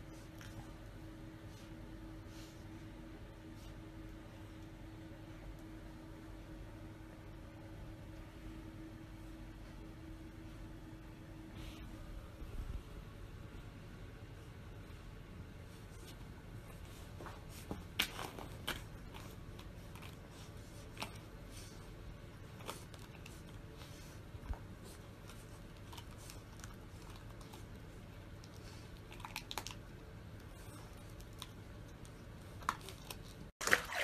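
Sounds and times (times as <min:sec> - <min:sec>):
low room hum: 0:00.0 - 0:34.0
puppy chewing crinkly wrapper: 0:22.5 - 0:23.6, 0:24.8 - 0:33.5.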